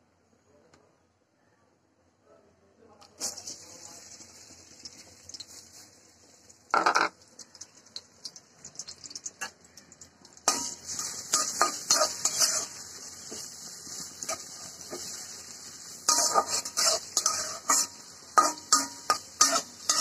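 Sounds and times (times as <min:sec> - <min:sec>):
vegetables sizzling in hot oil: 0:03.1 - 0:20.0
metal spatula scraping pan: 0:10.5 - 0:15.4, 0:16.0 - 0:20.0.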